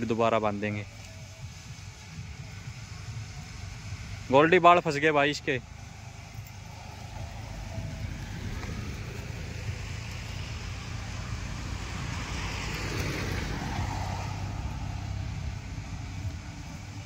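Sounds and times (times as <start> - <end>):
low engine hum: 0.0 - 17.0
vehicle passing: 5.0 - 17.0.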